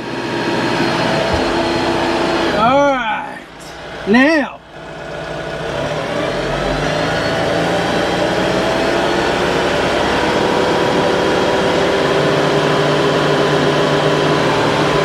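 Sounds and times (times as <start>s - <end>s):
tractor engine revving: 0.0s - 15.0s.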